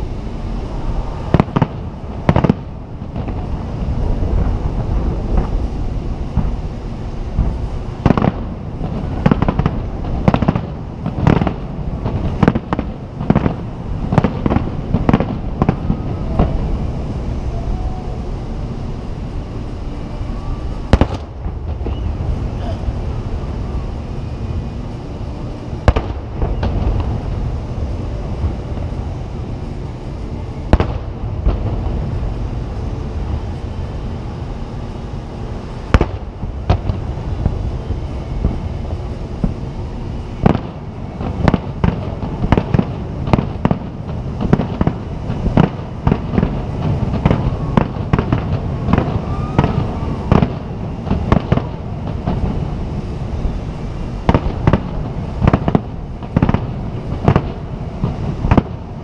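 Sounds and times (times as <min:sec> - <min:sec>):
low rumble: 0:00.0 - 0:59.0
firework shells bursting: 0:07.2 - 0:17.0, 0:20.9 - 0:22.4, 0:40.4 - 0:53.2.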